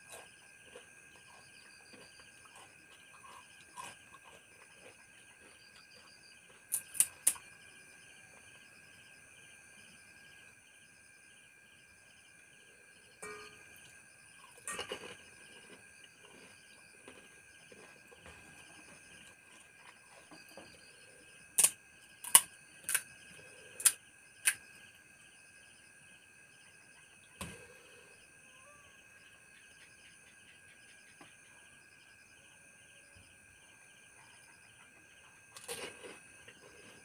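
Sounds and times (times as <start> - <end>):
night insects chirping: 0.0 - 37.0
crisp shells cracking by hand: 6.7 - 7.4, 21.6 - 23.0.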